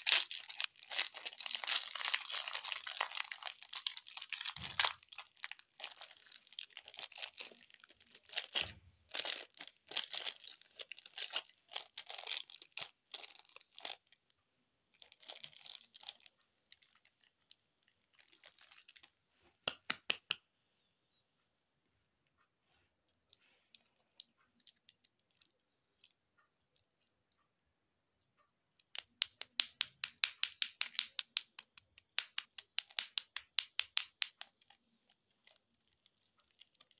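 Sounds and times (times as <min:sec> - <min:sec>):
plastic wrappers crinkling: 0:00.0 - 0:14.3, 0:14.9 - 0:19.4, 0:30.2 - 0:36.9.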